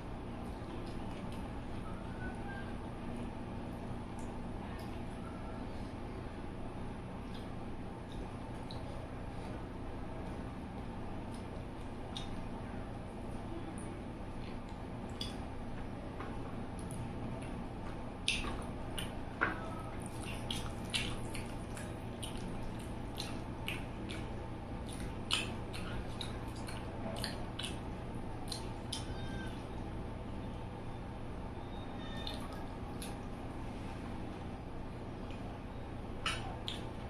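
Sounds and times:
low background hum: 0.0 - 37.0
mouth clicks and lip smacks: 7.3 - 8.9, 11.3 - 12.5, 13.8 - 15.4, 16.7 - 19.2, 20.0 - 29.2, 32.2 - 33.4, 36.2 - 37.0
wet chewing: 16.6 - 29.6, 32.0 - 33.5, 36.2 - 37.0.

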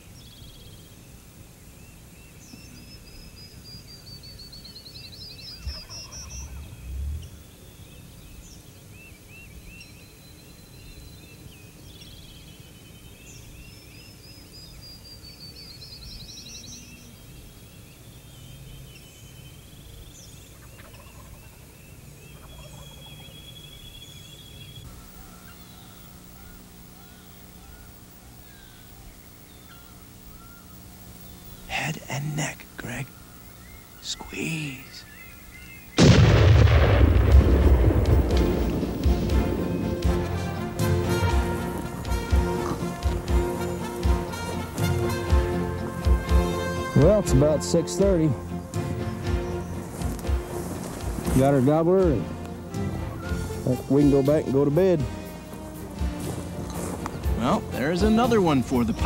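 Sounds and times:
songbirds trilling and whistling: 0.0 - 36.2, 37.8 - 59.0
low steady hum: 0.0 - 59.0
turkey gobbling: 5.6 - 6.8, 20.6 - 21.6, 22.4 - 23.3, 24.9 - 29.1, 39.4 - 46.6, 52.8 - 54.3.

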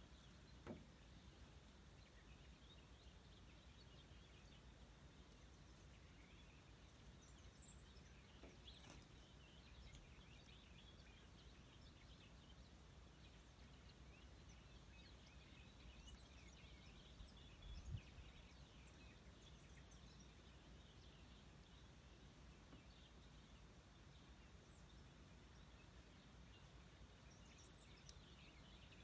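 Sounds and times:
birds chirping faintly: 0.0 - 29.0.

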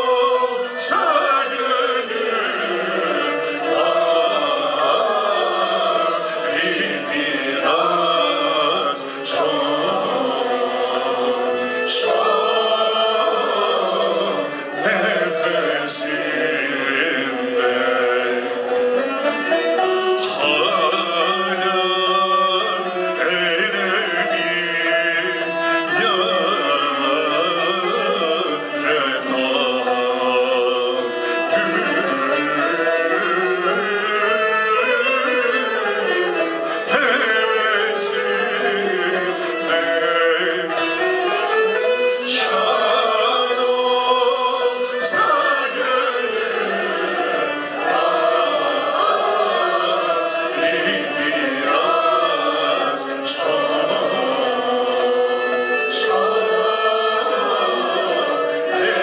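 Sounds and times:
traditional ensemble with zither and lute: 0.0 - 59.0
man singing ornamented lines: 20.1 - 59.0.

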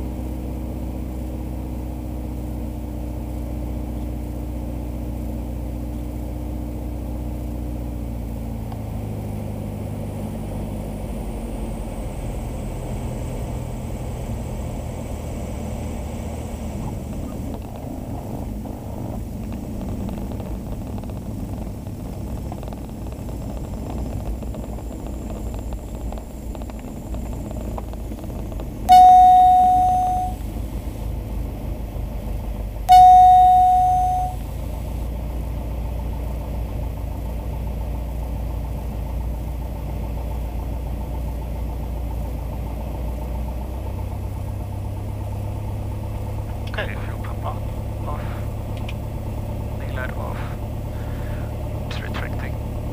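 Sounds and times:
propeller aircraft engine running: 0.0 - 52.9
electronic alert tone: 28.9 - 30.4, 32.9 - 34.4.

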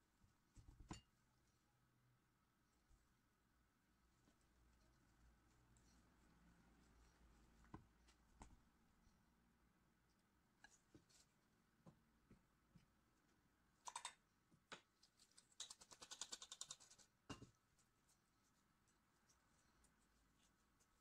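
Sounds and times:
flour sifter clicking rapidly: 15.5 - 17.1.

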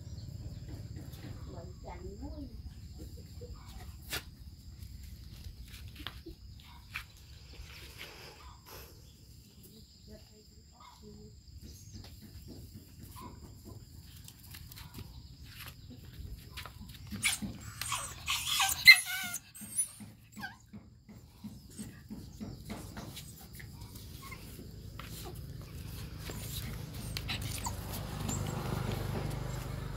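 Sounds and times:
puppy whimpering and yelping: 17.0 - 20.8, 24.0 - 25.4, 26.1 - 29.8.

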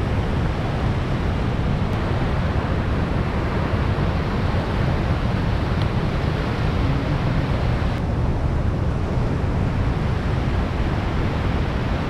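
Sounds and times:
river rushing over weir: 0.0 - 12.0.

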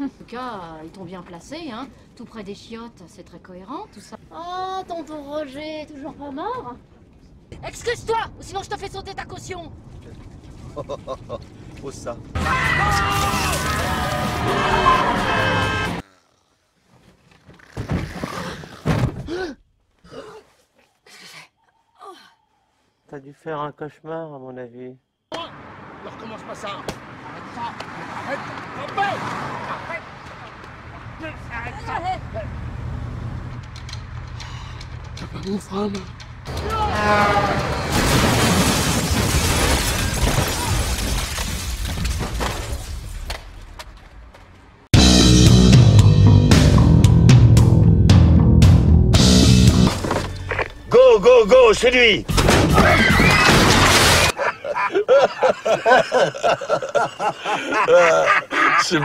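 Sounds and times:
loud screaming: 12.4 - 16.0, 36.5 - 38.4, 52.6 - 54.4
crunching vehicle impact: 37.3 - 44.8
debris clattering: 37.6 - 44.6, 52.3 - 54.4
glass breaking: 37.8 - 43.2, 52.3 - 54.4.

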